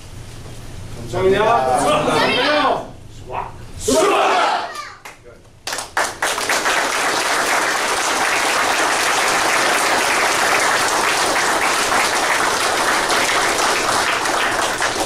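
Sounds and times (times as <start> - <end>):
crowd applauding: 5.7 - 15.0.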